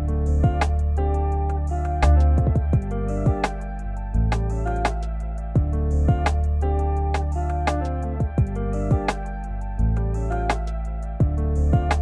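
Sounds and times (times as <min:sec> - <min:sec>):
sustained chords over low bass: 0:00.0 - 0:12.0.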